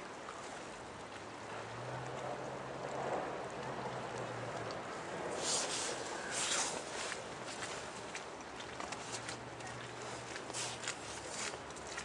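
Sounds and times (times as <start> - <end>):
flowing water hiss: 3.9 - 8.4, 9.0 - 11.4.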